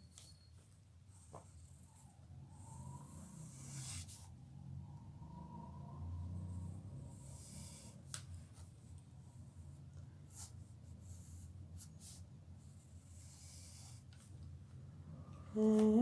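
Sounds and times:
low room hum: 0.0 - 16.0
pencil scratching on paper: 3.4 - 4.3.

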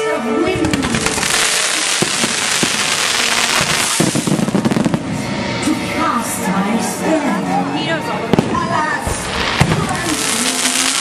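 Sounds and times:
fireworks crackling and popping: 0.5 - 5.2, 8.3 - 11.0.

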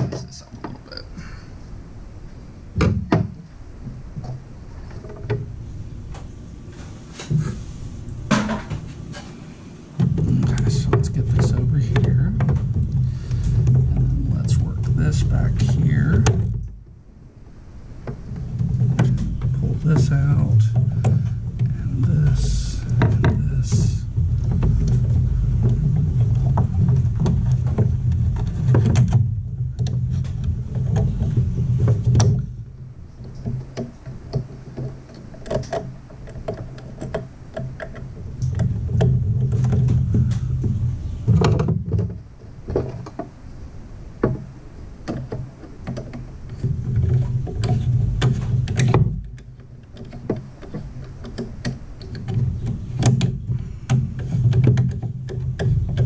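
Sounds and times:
low rumble: 10.0 - 33.2.

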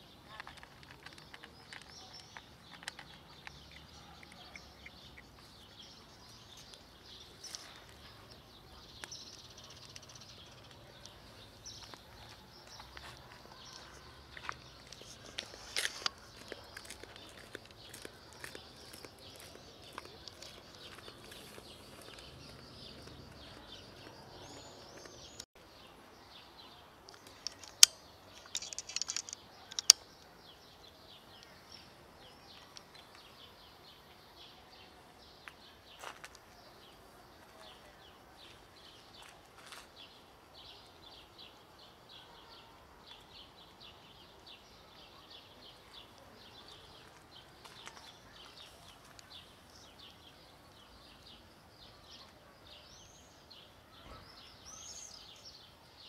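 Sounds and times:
bird chirps: 0.0 - 25.5
small scattered clicks: 27.1 - 30.2.

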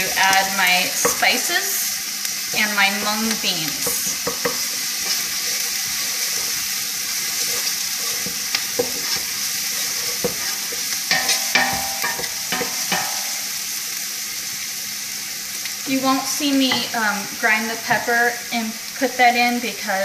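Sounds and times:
onions sizzling in oil: 0.0 - 20.0
wooden spoon scraping a pot: 2.5 - 11.5.

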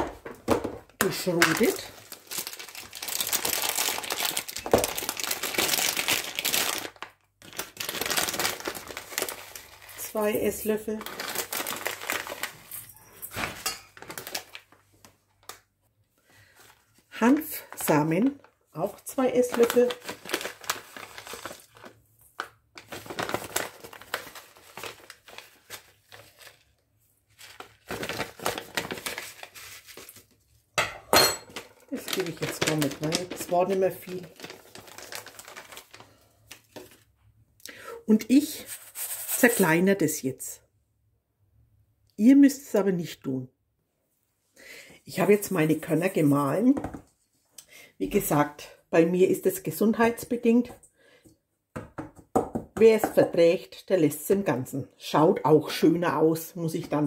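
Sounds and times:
plastic bag crinkling: 1.0 - 15.6, 16.5 - 30.4, 31.4 - 37.1.

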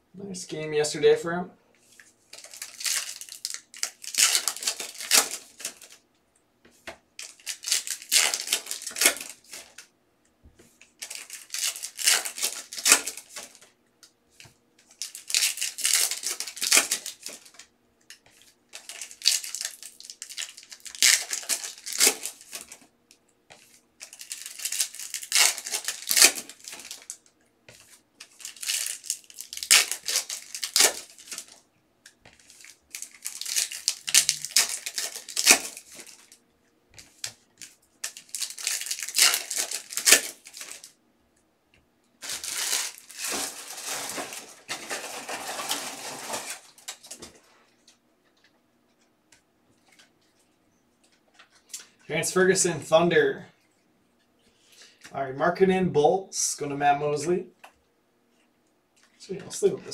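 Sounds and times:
foil wrappers crinkling and tearing: 1.9 - 6.0, 7.2 - 9.9, 10.8 - 13.7, 14.8 - 22.9, 23.5 - 36.4, 37.0 - 41.0, 42.2 - 48.0
cards being shuffled: 6.7 - 9.8.

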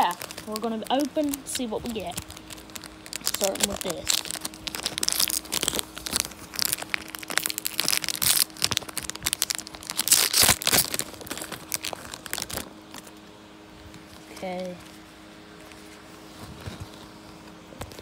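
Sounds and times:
foil wrapper crinkling and tearing: 0.0 - 13.2, 15.6 - 18.0.

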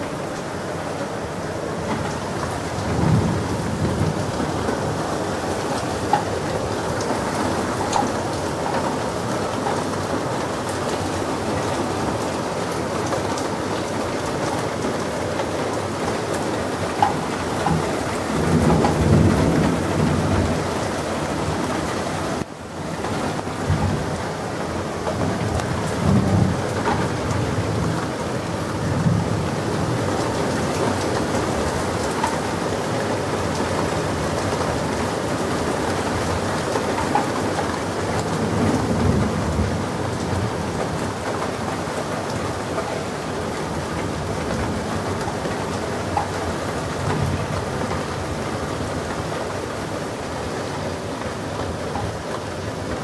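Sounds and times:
steady rain falling: 0.0 - 53.0
thunder rumbling: 1.2 - 49.3.

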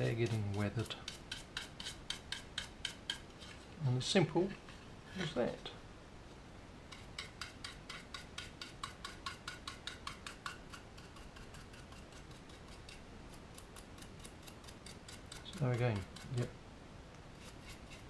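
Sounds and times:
paintbrush scratchy ticks: 6.9 - 16.5.

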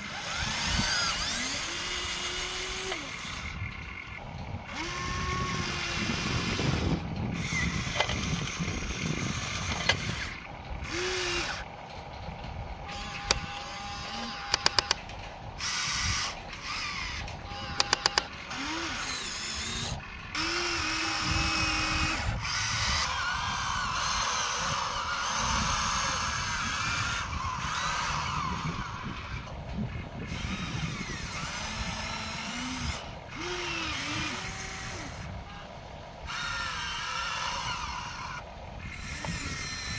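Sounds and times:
small electric motors whining: 0.0 - 39.9
sharp clicks: 7.2 - 20.6.

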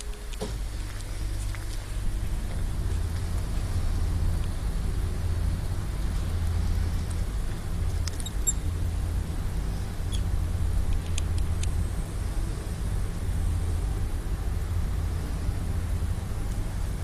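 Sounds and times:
steady low rumble: 0.0 - 17.0
mouse squeaking: 8.1 - 8.6, 10.0 - 10.3.

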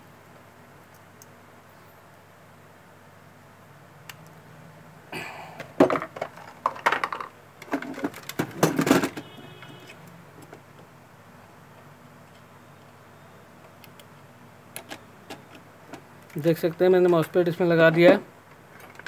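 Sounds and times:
plastic box clattering and rattling: 5.7 - 9.3.

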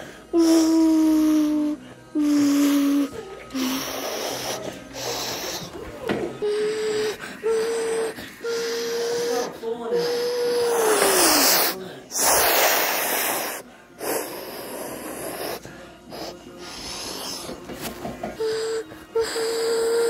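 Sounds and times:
child imitating a jet: 0.4 - 4.6, 6.4 - 15.6.

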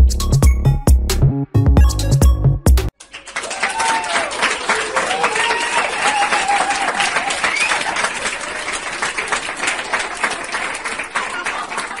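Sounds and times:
crowd applauding: 2.9 - 12.0
crowd calling out: 3.4 - 8.0.

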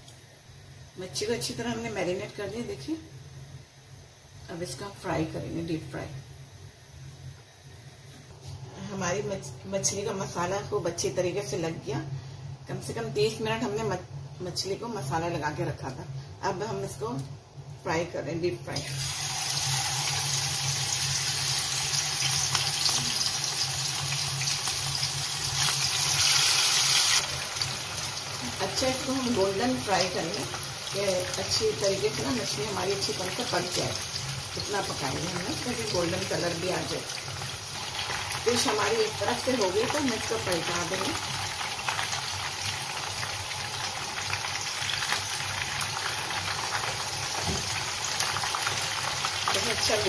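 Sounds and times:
fish sizzling in hot oil: 18.8 - 50.0.

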